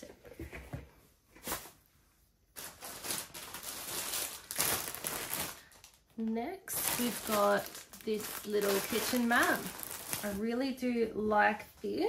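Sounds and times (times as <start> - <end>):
packaging rustling and crinkling: 2.5 - 10.6.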